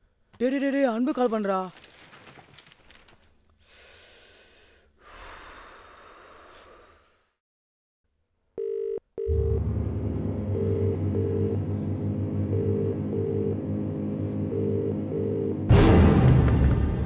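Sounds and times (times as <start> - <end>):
phone ringback tone: 8.6 - 9.6, 10.5 - 11.6, 12.5 - 13.6, 14.5 - 15.7
low dark music drone: 9.3 - 16.8.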